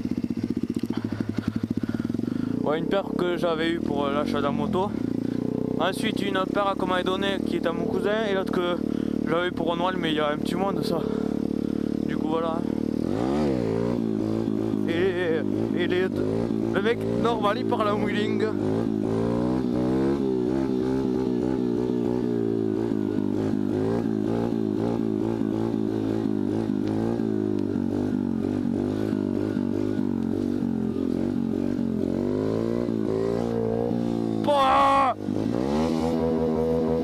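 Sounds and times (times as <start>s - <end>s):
dirt bike engine revving: 0.0s - 37.0s.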